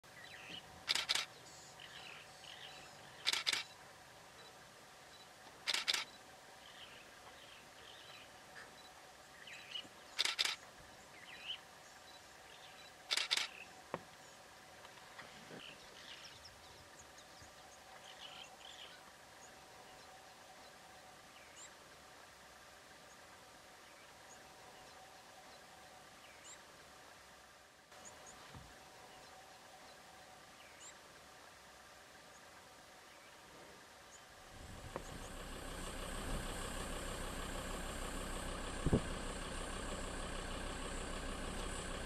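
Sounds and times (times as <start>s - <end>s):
low steady background: 0.0s - 42.0s
faint bird chirps: 0.1s - 14.4s, 15.5s - 21.8s
camera shutter clicking: 0.9s - 1.3s, 3.2s - 3.7s, 5.7s - 6.1s, 10.2s - 10.6s, 13.1s - 13.6s.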